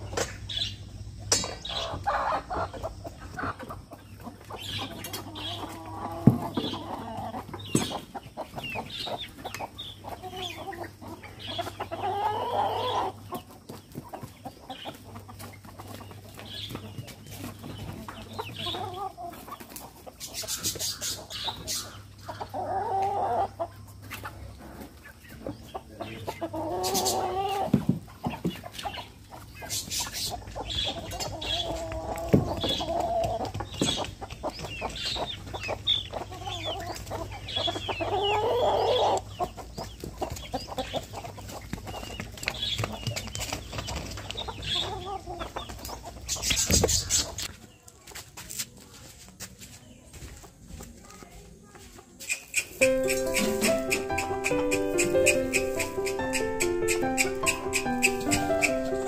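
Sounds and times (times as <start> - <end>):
long drawn-out chicken calls: 0.0 - 42.1, 52.4 - 59.0
chickens clucking: 0.0 - 59.0.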